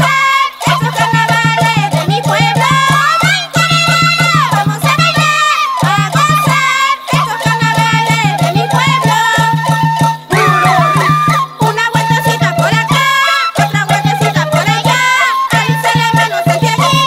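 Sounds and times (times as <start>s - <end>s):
high wavering melody: 10.3s - 11.6s
fast drumbeat: 10.3s - 11.9s.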